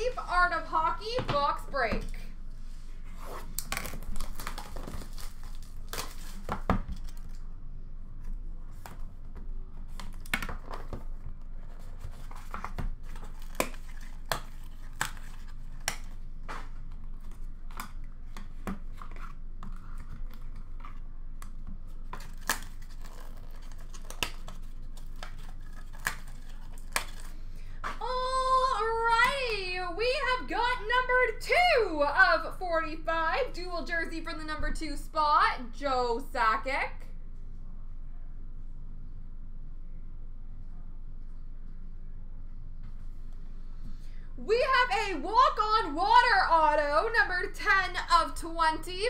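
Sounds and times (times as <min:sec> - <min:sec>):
packaging tearing and crinkling: 0:03.4 - 0:07.4, 0:11.6 - 0:21.1, 0:21.8 - 0:27.4.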